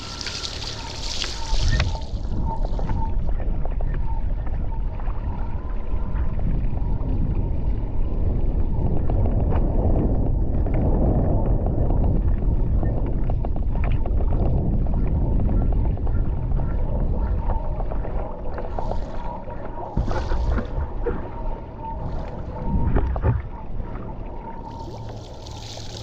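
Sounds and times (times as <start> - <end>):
water rushing and spraying: 0.0 - 2.0, 24.7 - 26.0
wind buffeting the microphone: 0.0 - 26.0.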